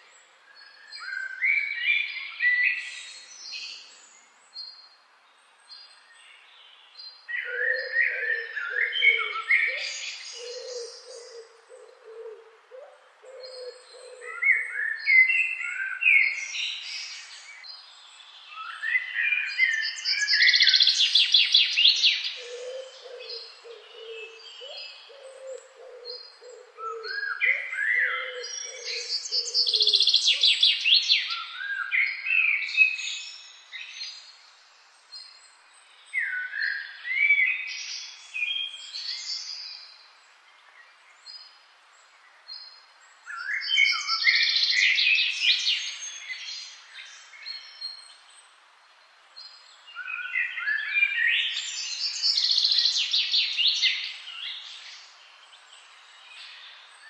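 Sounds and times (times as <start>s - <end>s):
bird's low repeated calls: 7.4s - 16.3s, 21.6s - 31.9s.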